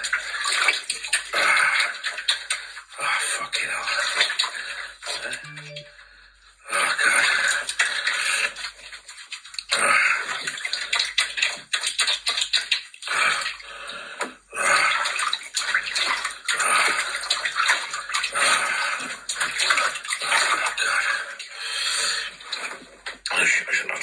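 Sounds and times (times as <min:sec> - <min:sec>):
water splashing in a sink: 0:00.0 - 0:05.9, 0:06.6 - 0:24.0.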